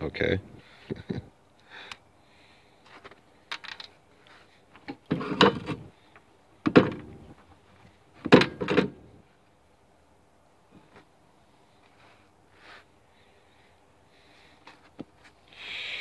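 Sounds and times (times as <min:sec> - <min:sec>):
rubbing and knocking of wires: 0:04.8 - 0:05.9.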